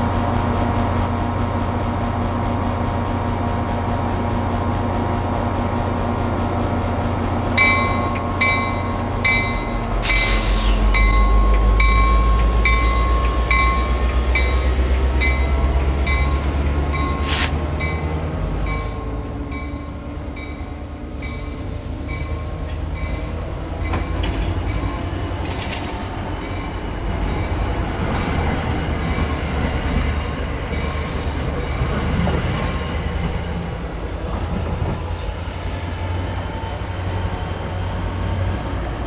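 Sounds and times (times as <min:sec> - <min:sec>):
diesel locomotive idling: 0:00.0 - 0:39.0
locomotive bell ringing: 0:07.5 - 0:29.5.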